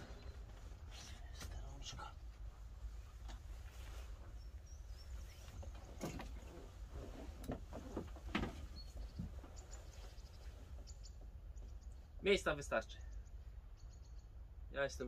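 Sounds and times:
seat mechanism clicks and knocks: 5.6s - 9.5s.

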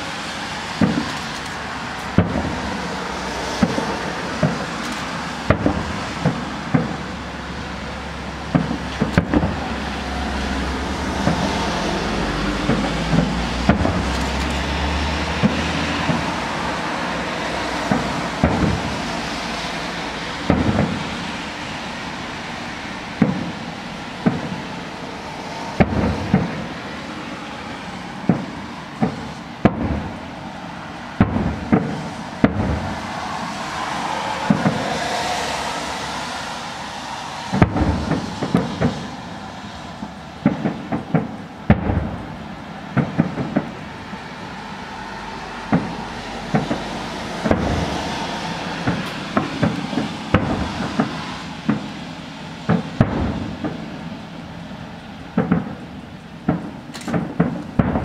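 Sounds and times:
background rush of noise: 0.0s - 58.0s
firework shells bursting: 0.6s - 22.2s, 23.0s - 27.2s, 31.2s - 36.7s, 37.5s - 44.4s, 45.7s - 58.0s.

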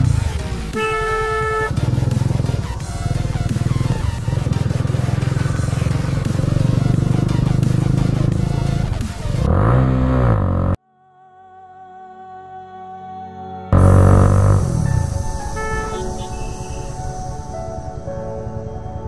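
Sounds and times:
motorcycle engine pulsing exhaust: 0.0s - 10.8s, 13.8s - 17.1s.

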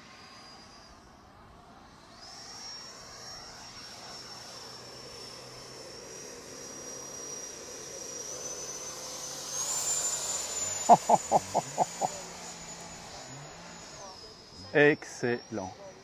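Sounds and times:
electric fan jet whining: 7.2s - 16.0s.

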